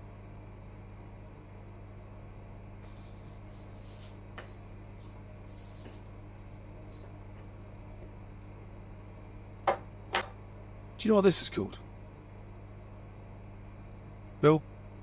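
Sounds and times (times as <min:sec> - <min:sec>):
low electrical hum: 0:00.0 - 0:15.0
soft hissy rubbing strokes: 0:02.7 - 0:08.6.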